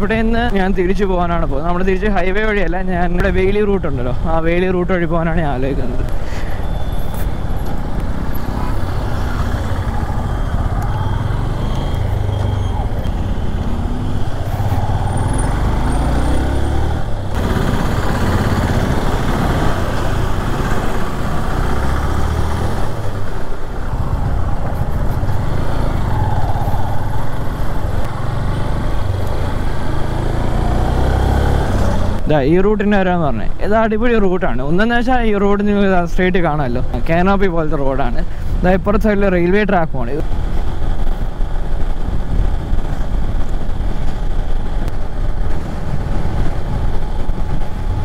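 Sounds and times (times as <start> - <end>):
road noise: 0.0 - 48.0
motorcycle engine: 7.6 - 32.3
wind buffeting on microphone: 22.8 - 28.1.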